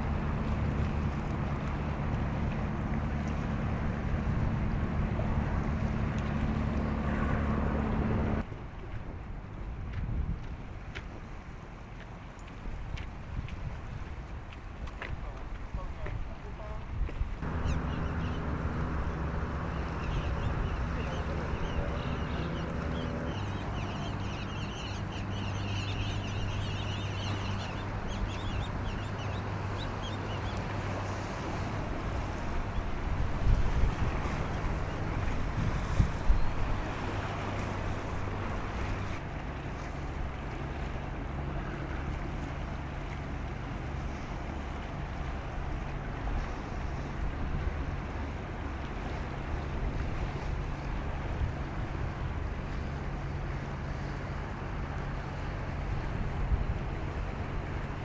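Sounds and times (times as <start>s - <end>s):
ship engines droning: 0.0s - 8.4s, 17.4s - 58.0s
wind on microphone: 0.0s - 11.3s, 12.6s - 39.2s, 55.0s - 58.0s
flock of birds chirping: 17.4s - 31.2s
steady low hum: 17.4s - 39.2s.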